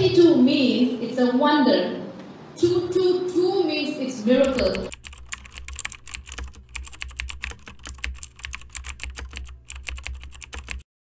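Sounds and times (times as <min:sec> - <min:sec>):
rapid irregular clicking: 0:04.4 - 0:10.9.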